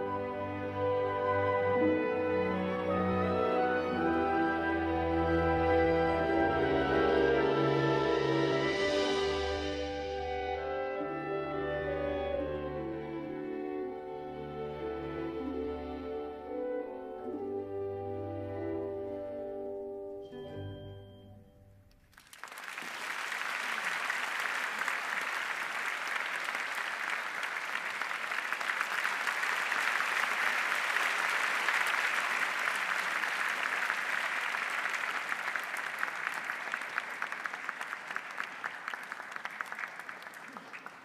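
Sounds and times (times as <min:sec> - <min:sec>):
orchestral music: 0:00.0 - 0:21.2
audience applause: 0:22.1 - 0:41.0.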